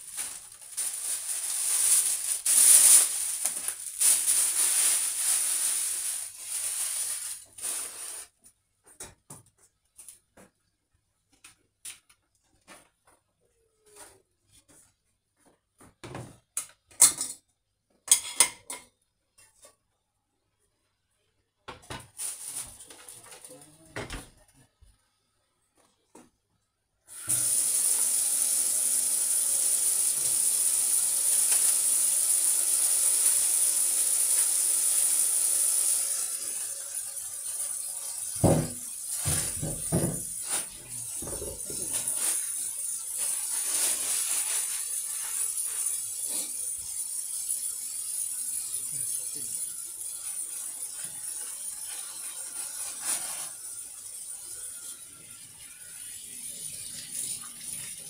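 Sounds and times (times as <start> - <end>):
knocks in sink: 38.4 - 40.3.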